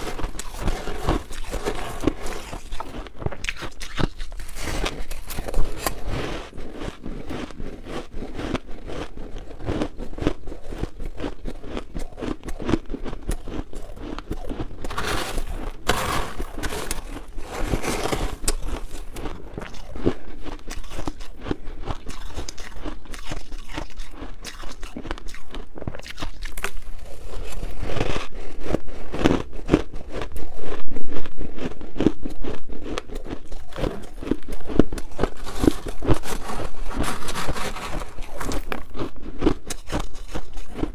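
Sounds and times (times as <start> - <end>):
metal spoon scraping ice: 0.0 - 8.2, 13.2 - 21.3, 33.1 - 40.9
chewing crunchy ice: 0.0 - 40.9.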